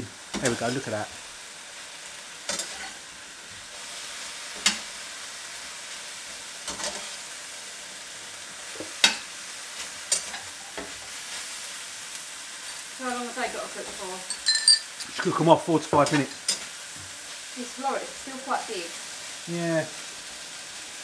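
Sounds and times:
vegetables sizzling in a wok: 0.0s - 21.0s
spatula clacking against pan: 8.8s - 9.3s.

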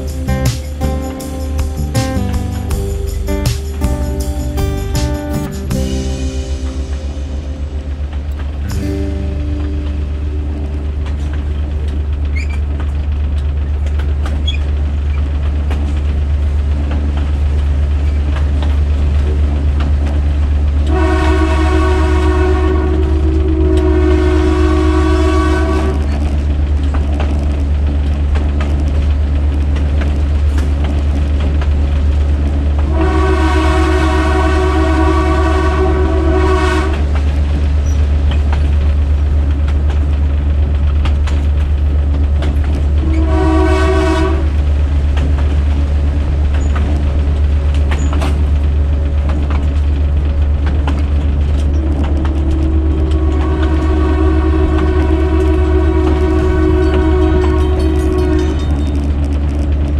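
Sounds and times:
locomotive air horn chord: 0.0s - 12.2s, 20.8s - 26.4s, 32.8s - 37.7s, 42.9s - 45.2s, 51.4s - 58.9s
low rumble of moving train: 0.0s - 59.9s.

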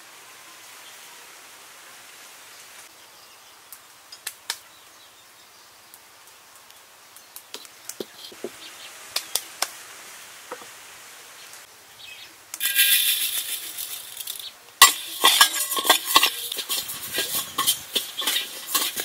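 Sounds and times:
faint background hiss: 0.0s - 19.0s
kitchenware knocking and clinking: 14.8s - 19.0s.

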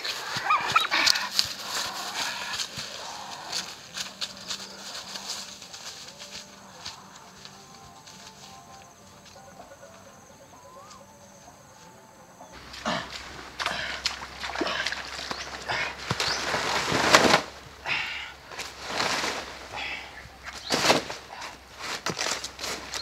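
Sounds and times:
chicken wings flapping: 0.0s - 8.3s, 14.1s - 17.6s
chicken squawking: 0.2s - 2.6s.

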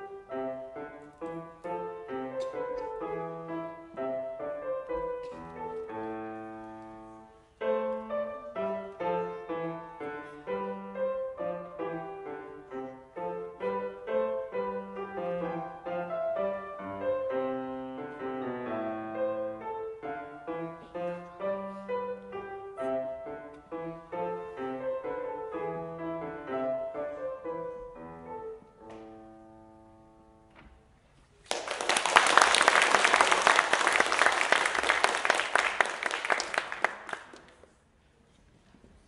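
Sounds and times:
grand piano playing: 0.0s - 30.5s
audience applause: 31.4s - 37.6s.

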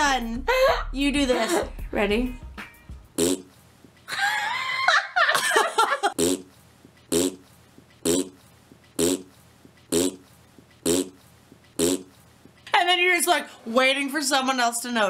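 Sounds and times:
fart noise: 3.2s - 3.6s, 6.1s - 12.2s.

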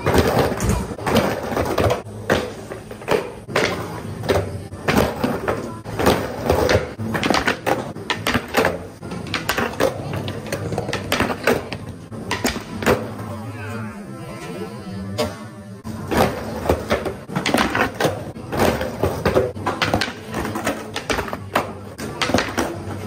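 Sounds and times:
skateboard clacks and slaps: 0.0s - 13.2s, 16.0s - 23.0s
skateboard wheels rolling on concrete: 0.0s - 23.0s.

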